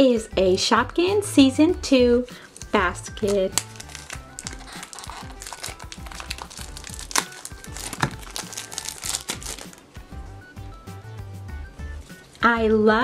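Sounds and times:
quiet background music: 0.0 - 13.0
plastic packaging crinkling: 3.2 - 10.0.

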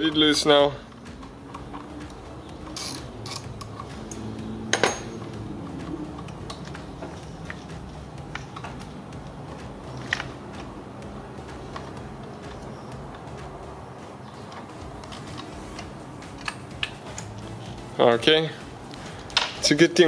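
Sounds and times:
ratchet clicking: 0.9 - 5.4
hand tools clinking on metal: 1.5 - 5.4
sharp metallic clink: 4.7 - 5.2.

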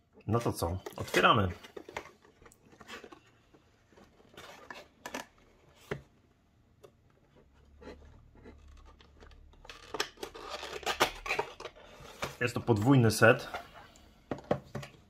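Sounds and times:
cardboard box rustling: 0.5 - 6.1.

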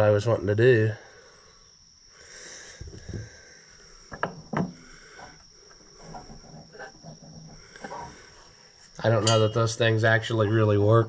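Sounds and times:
metallic knocks: 9.2 - 9.7.

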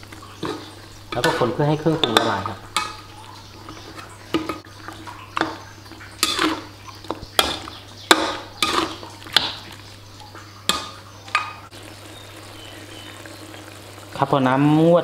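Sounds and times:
utensil scraping a pan: 0.2 - 9.6.

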